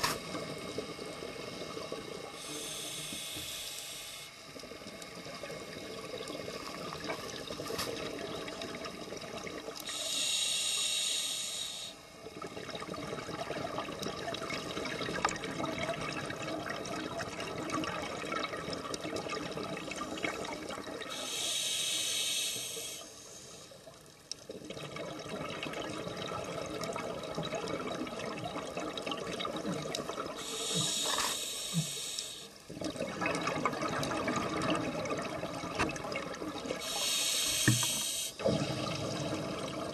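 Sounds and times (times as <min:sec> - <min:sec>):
hissing regulator breaths: 0:02.2 - 0:04.6, 0:09.8 - 0:12.0, 0:21.1 - 0:23.8, 0:30.4 - 0:32.6, 0:36.8 - 0:38.5
rush of bubbles: 0:24.5 - 0:31.3, 0:32.7 - 0:39.9.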